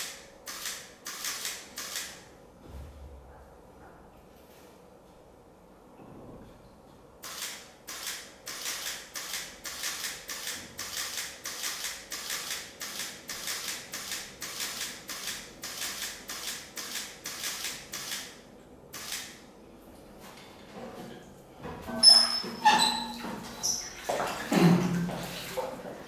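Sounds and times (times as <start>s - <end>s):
camera shutter firing in bursts: 0.0s - 2.3s, 7.2s - 19.4s.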